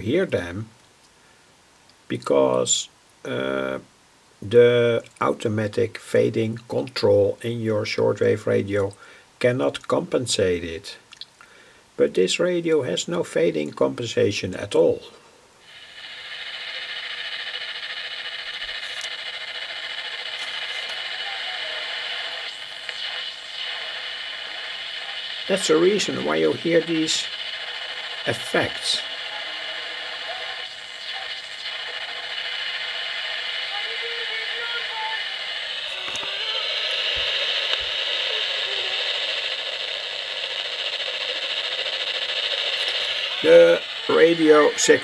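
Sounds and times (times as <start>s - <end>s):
weak distant radio station: 0.0s - 0.8s, 2.0s - 11.0s, 12.0s - 45.0s
radio band noise hiss: 0.0s - 45.0s
static clicks: 4.4s - 8.1s, 8.7s - 10.1s, 10.9s - 11.6s, 15.6s - 45.0s.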